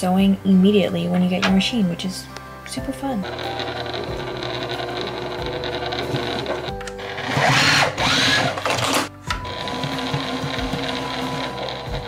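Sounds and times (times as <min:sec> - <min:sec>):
background music: 0:00.0 - 0:12.0
sewing machine stitching: 0:03.3 - 0:12.0.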